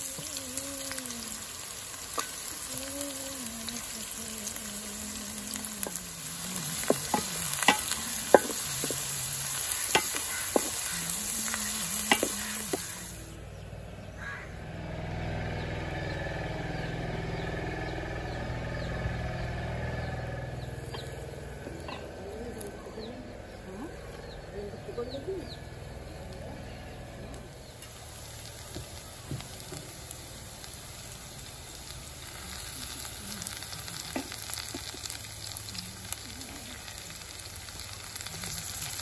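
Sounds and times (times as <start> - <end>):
onions sizzling in hot oil: 0.0 - 14.4, 25.0 - 39.0
wooden spatula knocking on pot: 10.0 - 10.8.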